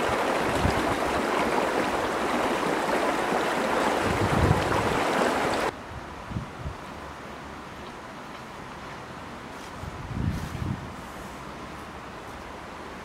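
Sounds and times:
stream water rushing: 0.0 - 5.8.

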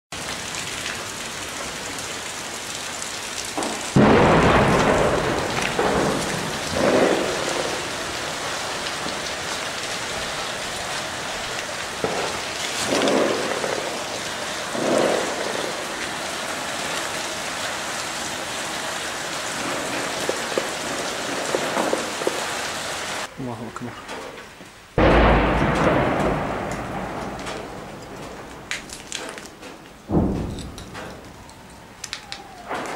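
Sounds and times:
steady rain falling: 0.1 - 32.9
heavy rolling booms: 3.6 - 16.2, 25.0 - 32.9.

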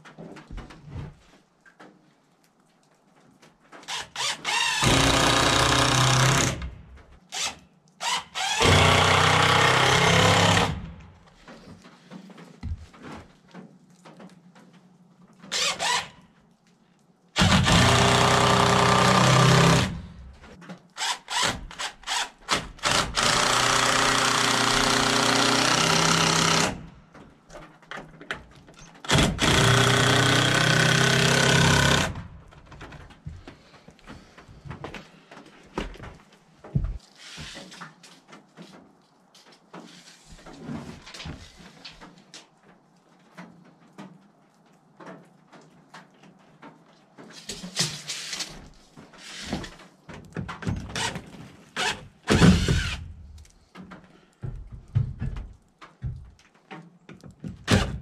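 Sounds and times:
impact driver driving screws: 17.4 - 20.1, 50.8 - 53.1.

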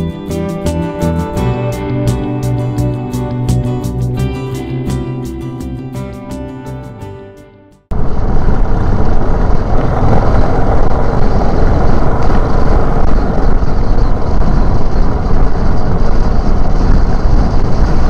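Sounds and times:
motorcycle engine at speed: 7.9 - 18.0
wind on microphone: 7.9 - 18.0.

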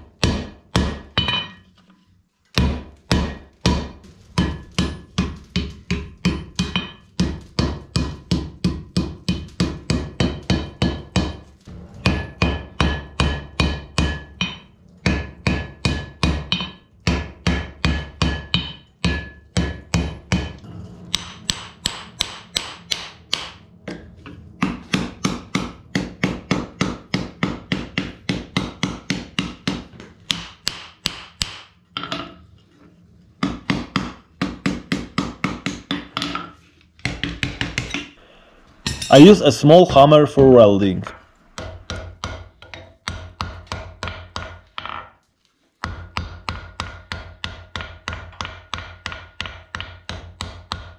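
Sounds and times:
hammer striking iron on anvil: 0.2 - 1.7, 2.6 - 11.4, 12.0 - 24.0, 24.6 - 32.4, 33.4 - 38.2, 38.8 - 40.6, 41.6 - 45.1, 45.8 - 50.9.

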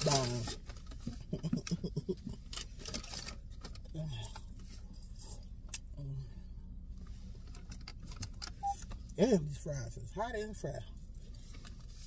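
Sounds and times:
paper packaging rustling: 0.0 - 1.2
steady low hum: 0.0 - 12.0.

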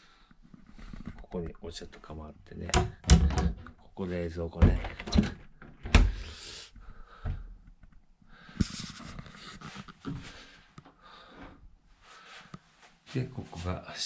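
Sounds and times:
soft rustling near microphone: 8.5 - 11.3, 11.9 - 14.0.

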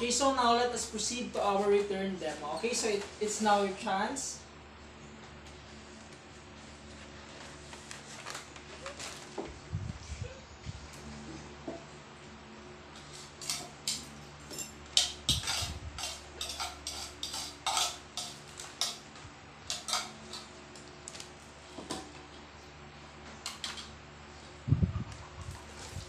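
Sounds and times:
dishes clinking in metal basin: 13.4 - 19.0, 19.7 - 20.5.

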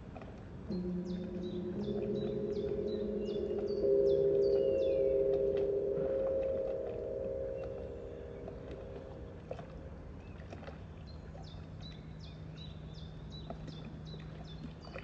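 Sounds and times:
low steady hum: 0.0 - 15.0
high falling chirp: 0.7 - 9.5.

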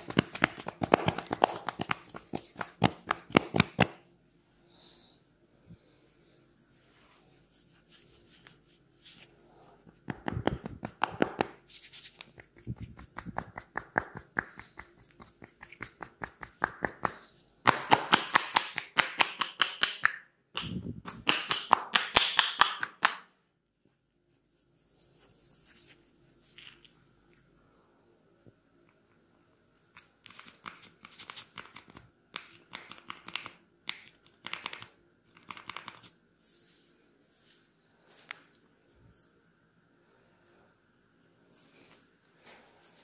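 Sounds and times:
rhythmic tapping massage claps: 0.0 - 4.0, 9.9 - 11.6, 12.2 - 23.3.

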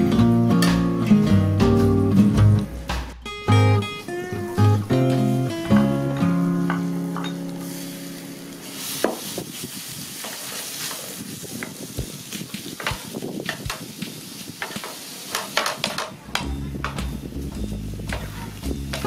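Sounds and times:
meat sizzling in a frying pan: 6.5 - 16.0
wooden spatula scraping a pan: 18.1 - 19.0.

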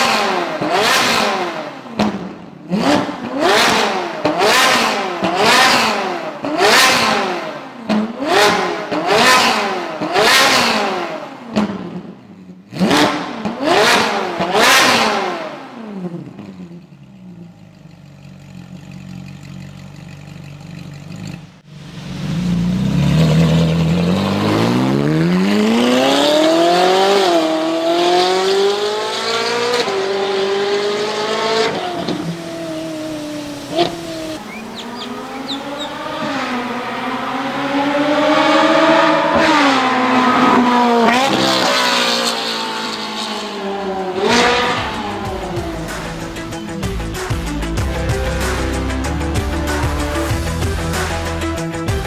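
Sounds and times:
car accelerating hard: 0.0 - 12.0, 12.7 - 16.5, 21.9 - 46.7
car engine revving: 0.0 - 16.8, 18.2 - 52.0
car engine idling: 16.4 - 24.0, 43.8 - 52.0.

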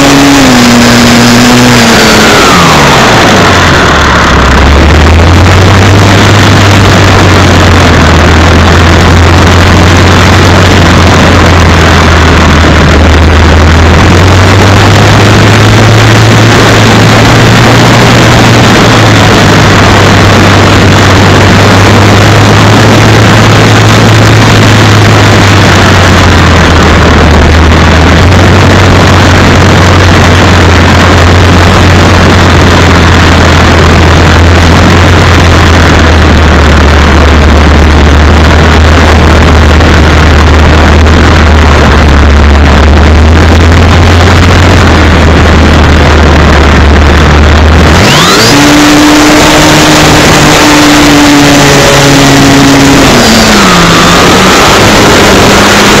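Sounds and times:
model plane motor drone: 0.0 - 5.8
rushing wind: 0.0 - 56.0.

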